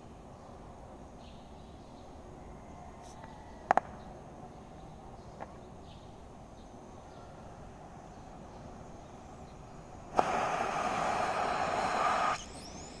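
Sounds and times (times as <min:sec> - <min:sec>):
gas hissing from torch: 0:10.0 - 0:13.0
cutting torch igniting pop: 0:10.1 - 0:13.0.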